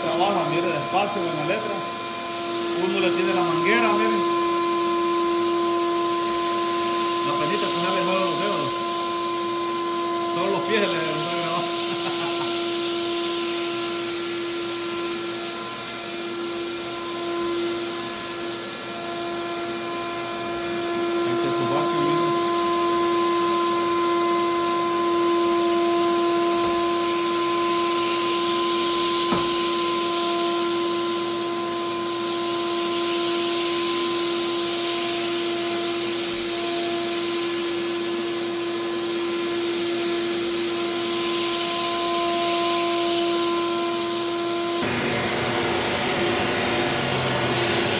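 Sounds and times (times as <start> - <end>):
floor sander motor hum and whine: 0.0 - 47.9
sanding and suction hiss: 0.0 - 47.9.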